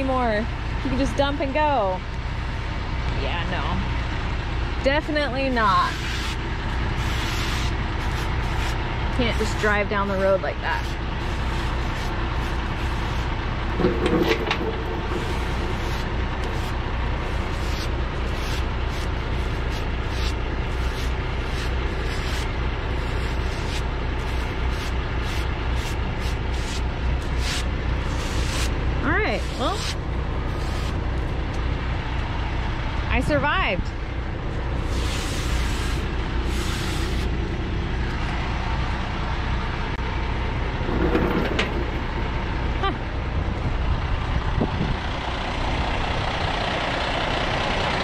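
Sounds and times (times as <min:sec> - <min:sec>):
diesel engine idling: 0:00.0 - 0:48.0
short air hisses: 0:34.8 - 0:37.3.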